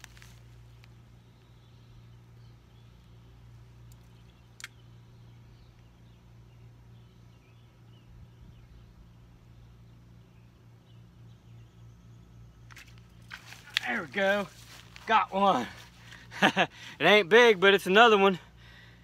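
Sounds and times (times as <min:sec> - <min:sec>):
faint birds chirping: 0:00.0 - 0:19.0
steady low hum: 0:00.0 - 0:19.0
sharp click: 0:04.6 - 0:04.8.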